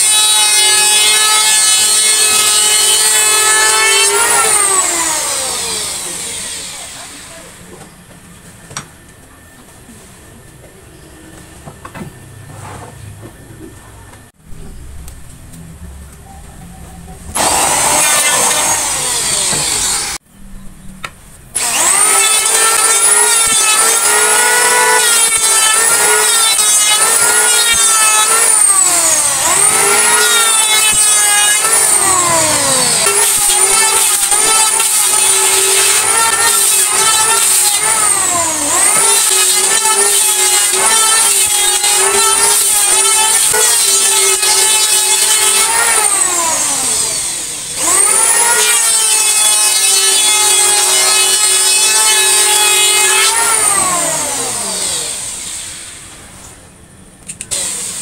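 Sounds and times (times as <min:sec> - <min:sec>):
power tool cutting wood: 0:00.0 - 0:07.6, 0:17.3 - 0:20.2, 0:21.5 - 0:56.2, 0:57.3 - 0:58.0.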